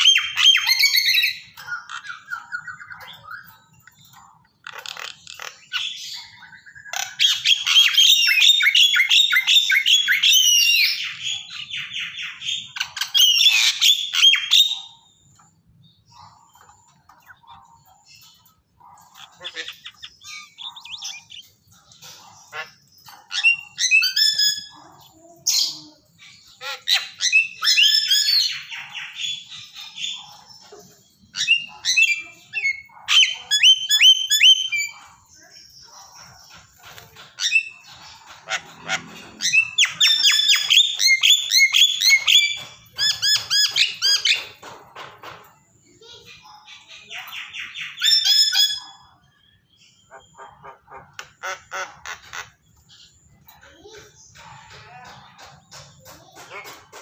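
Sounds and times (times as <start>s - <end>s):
mynas chirping and chattering: 0.0s - 57.0s
myna calling: 16.1s - 27.7s, 31.4s - 43.8s.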